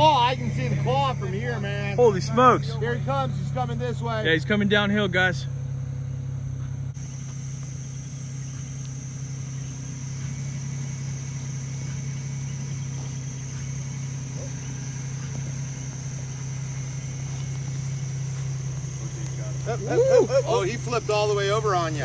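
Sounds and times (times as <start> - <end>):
low motor hum: 0.0 - 22.0
high-pitched insect drone: 5.9 - 22.0.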